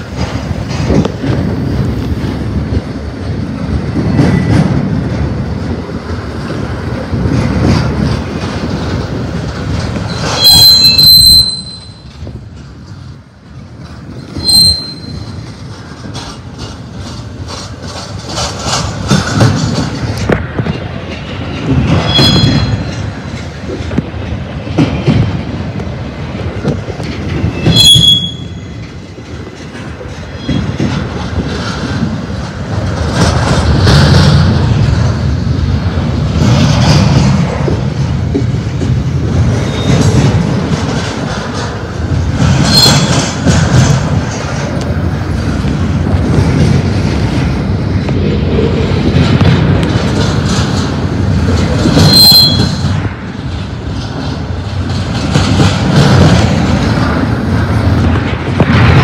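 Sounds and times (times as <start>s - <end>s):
freight cars rumbling on rails: 0.0s - 59.0s
high-pitched wheel squeals: 10.1s - 12.1s, 14.4s - 15.4s, 22.0s - 22.9s, 27.5s - 28.7s, 42.7s - 43.2s, 52.0s - 52.9s.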